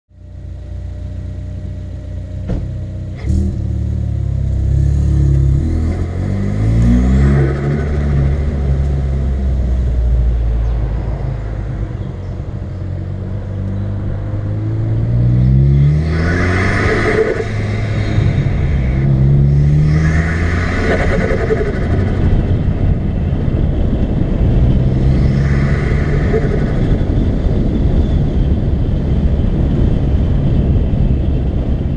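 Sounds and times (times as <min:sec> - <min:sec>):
car engine accelerating: 0:00.2 - 0:31.9
turbo flutter and whoosh: 0:15.7 - 0:23.1, 0:24.3 - 0:28.2.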